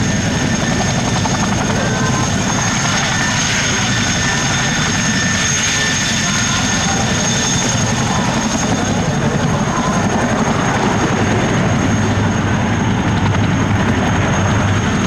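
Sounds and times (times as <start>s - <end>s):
deep propeller drone: 0.0s - 15.0s
high turbine whine: 0.0s - 15.0s.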